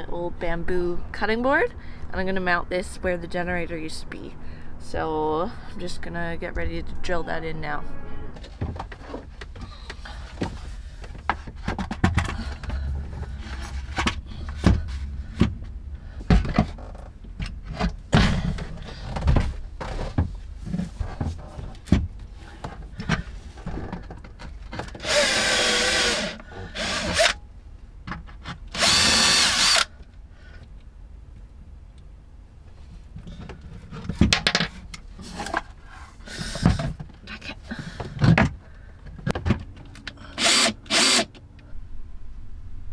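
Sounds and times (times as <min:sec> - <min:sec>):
cordless drill running: 0:25.0 - 0:27.4, 0:28.8 - 0:29.9, 0:40.4 - 0:41.3.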